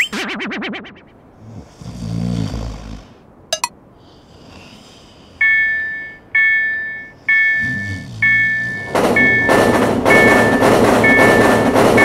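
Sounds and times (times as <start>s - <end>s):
cartoon snore: 1.4s - 3.2s, 7.6s - 8.9s
railroad crossing bell ringing: 5.4s - 12.0s.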